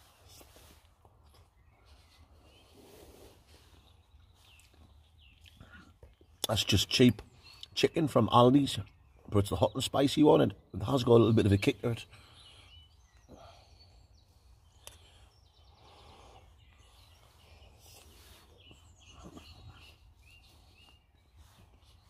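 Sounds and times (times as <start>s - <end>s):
mouth sounds of eating: 4.2s - 6.7s.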